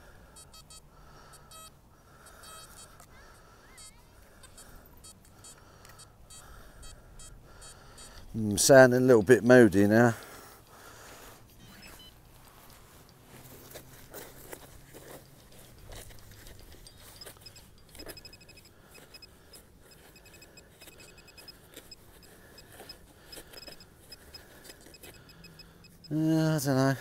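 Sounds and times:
high electronic beeps: 11.6s - 12.2s, 16.8s - 26.3s.

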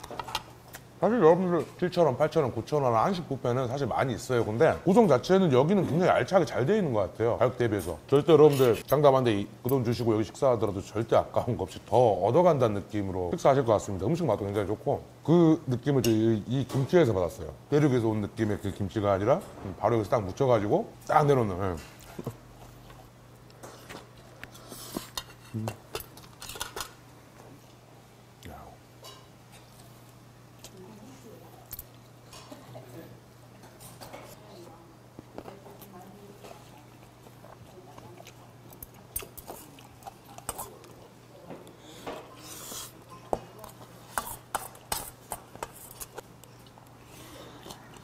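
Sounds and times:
spoon scraping hiss: 42.3s - 43.0s.

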